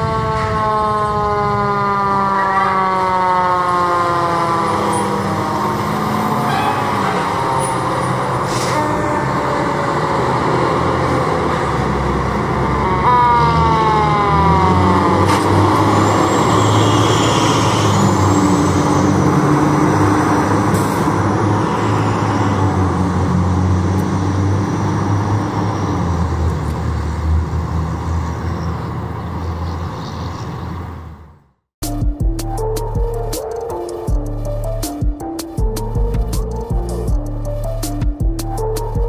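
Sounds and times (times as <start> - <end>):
siren: 0.0 - 28.4
fire truck diesel engines: 0.0 - 31.6, 32.4 - 39.0.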